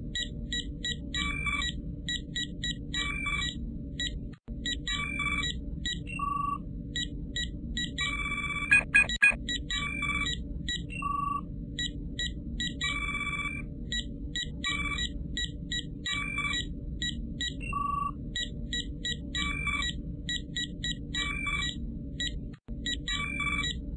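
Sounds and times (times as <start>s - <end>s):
steady low hum: 0.0s - 23.9s
electronic beeps and chirps: 7.9s - 9.4s.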